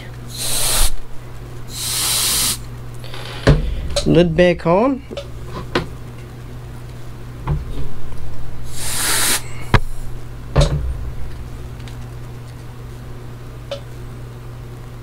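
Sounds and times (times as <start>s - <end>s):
low steady hum: 0.0s - 1.9s, 2.6s - 15.0s
short hiss: 0.3s - 1.0s, 8.7s - 9.5s
metal cover knocks and clicks: 10.6s - 11.4s.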